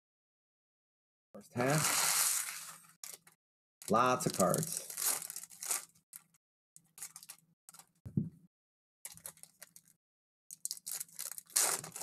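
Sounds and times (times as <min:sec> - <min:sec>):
foil wrappers crinkling and tearing: 0:01.6 - 0:07.9, 0:09.1 - 0:12.0.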